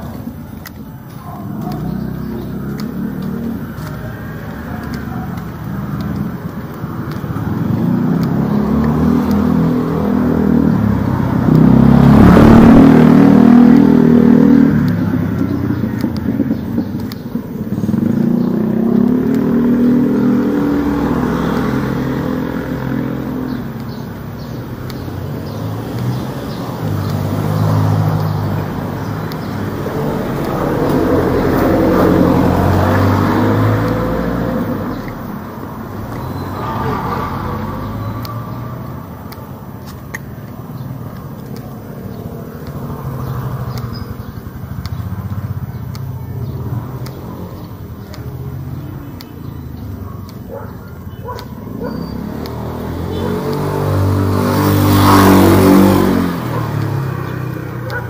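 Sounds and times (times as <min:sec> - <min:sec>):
motor vehicles passing: 0:00.0 - 0:58.0.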